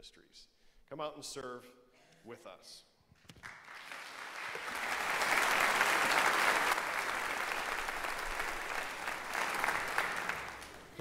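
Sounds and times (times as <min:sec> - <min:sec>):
congregation applauding: 0:03.3 - 0:11.0.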